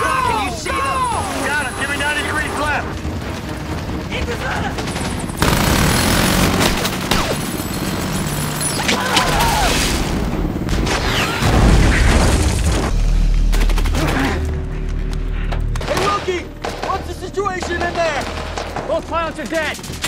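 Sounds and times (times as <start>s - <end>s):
heavy automatic gunfire: 1.4s - 8.8s, 16.6s - 20.0s.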